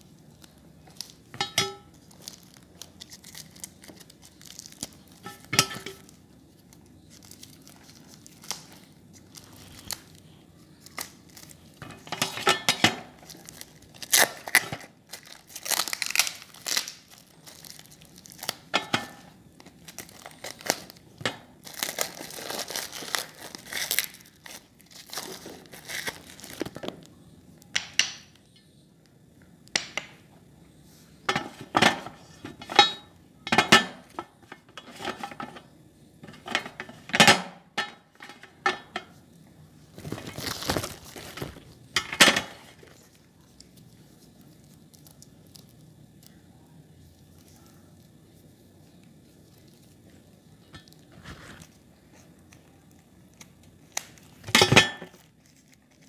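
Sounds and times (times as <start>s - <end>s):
plastic wrapping crinkling and tearing: 0.0s - 27.3s, 39.2s - 56.0s
steel plate clinking: 1.4s - 1.9s, 5.2s - 6.0s.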